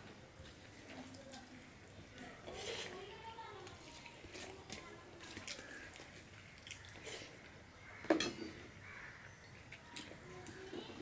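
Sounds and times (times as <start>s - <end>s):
chewing and wet mouth noises: 3.6s - 7.6s.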